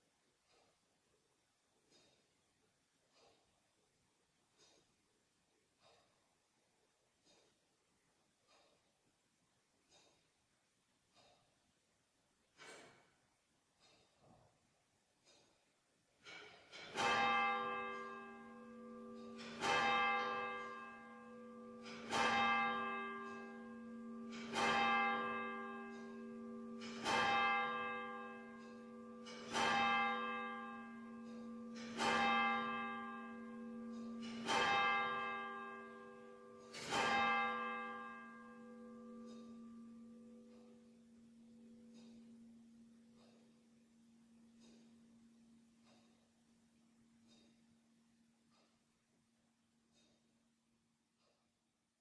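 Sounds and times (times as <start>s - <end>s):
church bell striking: 16.2s - 46.1s.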